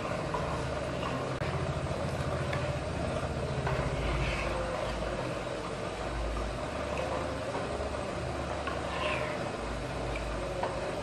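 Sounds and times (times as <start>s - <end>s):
steady low hum: 0.0s - 11.0s
spatula scraping a saucepan: 3.7s - 5.2s, 8.6s - 9.6s.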